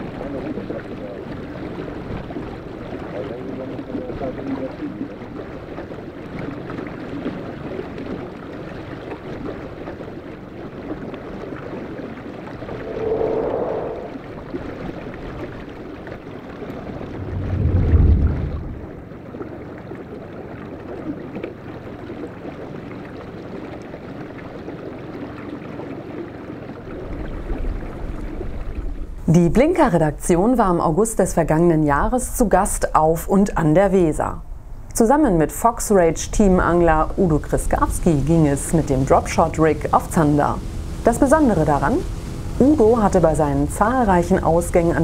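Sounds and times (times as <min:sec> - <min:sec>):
moving water: 0:00.0 - 0:45.0
wind: 0:00.0 - 0:45.0
deep low rumble: 0:12.5 - 0:14.4, 0:17.0 - 0:19.0
whoosh: 0:12.5 - 0:14.4.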